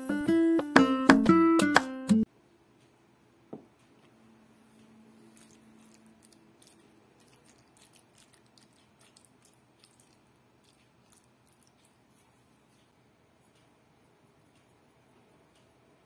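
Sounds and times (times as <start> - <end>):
wet squelching: 5.2 - 12.4.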